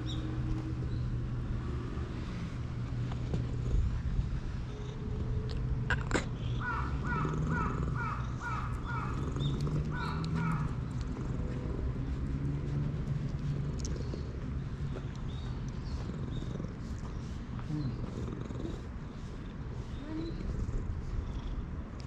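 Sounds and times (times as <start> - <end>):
crow cawing: 6.6 - 9.2, 9.9 - 10.7.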